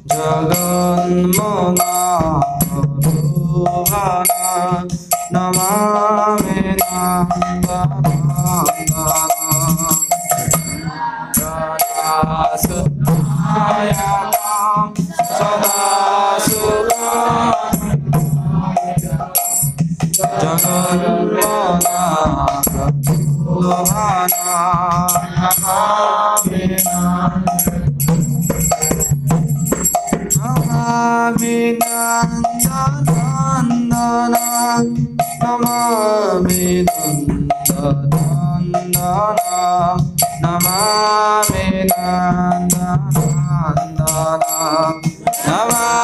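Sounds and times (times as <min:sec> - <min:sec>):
hand drum rhythm: 0:00.0 - 0:46.0
metallic jingling percussion: 0:00.0 - 0:46.0
wavering melody: 0:00.0 - 0:46.0.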